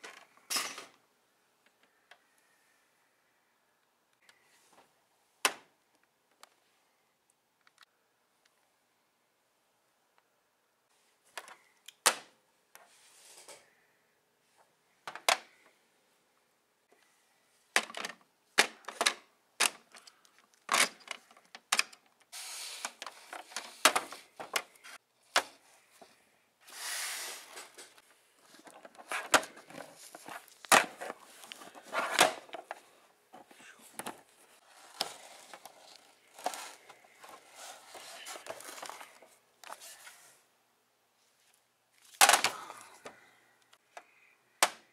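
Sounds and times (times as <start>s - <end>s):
plastic figures clacking together: 17.7s - 22.2s.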